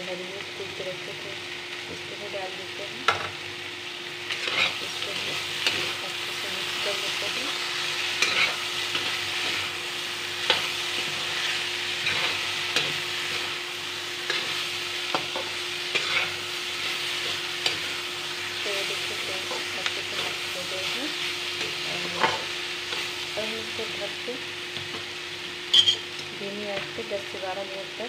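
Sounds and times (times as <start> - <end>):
vegetables sizzling in oil: 0.0 - 28.0
spatula scraping a pan: 4.3 - 6.0, 7.7 - 9.7, 14.2 - 18.1.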